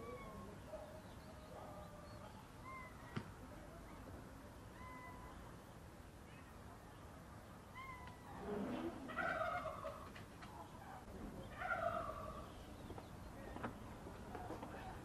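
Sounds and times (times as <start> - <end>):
animal calling: 1.5 - 3.2, 4.7 - 5.4.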